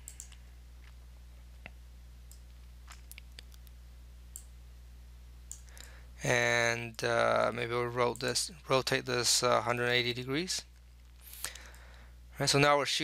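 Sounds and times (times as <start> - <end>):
low electrical hum: 0.0 - 13.0
computer mouse clicks: 0.1 - 0.4, 5.5 - 5.9.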